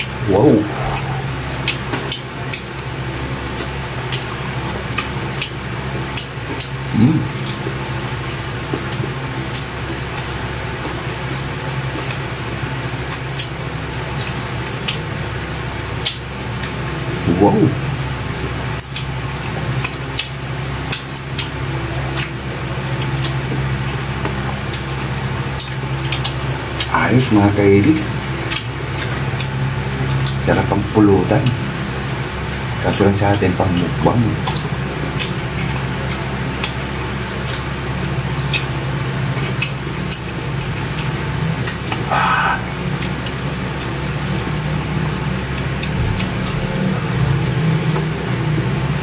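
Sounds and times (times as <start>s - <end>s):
low hum: 0.0s - 2.5s
steady low hum: 0.0s - 19.8s, 20.5s - 49.0s
wet chewing and lip-smacking: 0.1s - 26.9s, 27.8s - 30.5s, 33.8s - 48.8s.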